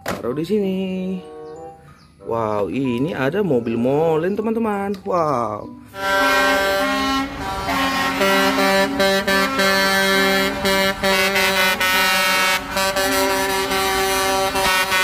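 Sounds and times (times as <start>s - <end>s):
truck air horns blasting: 5.9s - 15.0s.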